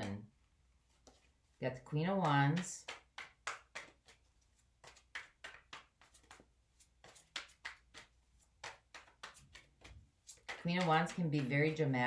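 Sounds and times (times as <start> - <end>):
cards being shuffled by hand: 0.8 - 12.0.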